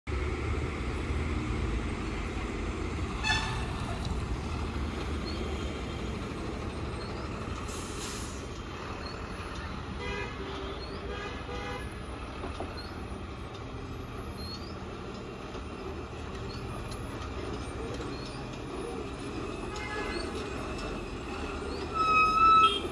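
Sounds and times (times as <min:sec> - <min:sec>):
lorry diesel engine droning: 0:00.1 - 0:22.9
brief hiss: 0:07.7 - 0:08.5.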